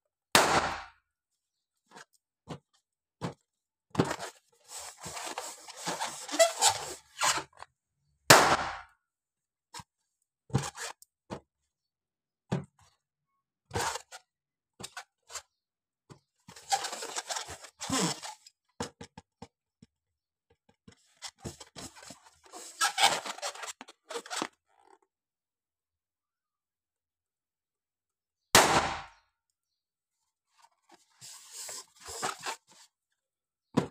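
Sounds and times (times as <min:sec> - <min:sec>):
balloon bursting pop: 0:00.3 - 0:00.9, 0:08.3 - 0:08.9, 0:28.5 - 0:29.2
rubbing squeaky latex balloons: 0:04.3 - 0:07.5, 0:16.5 - 0:18.5, 0:21.0 - 0:24.9, 0:31.0 - 0:32.7.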